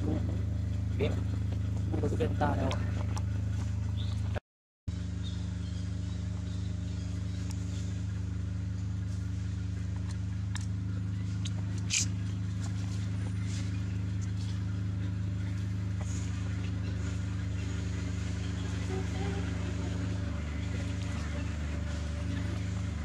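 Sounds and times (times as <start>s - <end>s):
motor humming: 0.0s - 23.0s
sharp click: 11.4s - 12.2s.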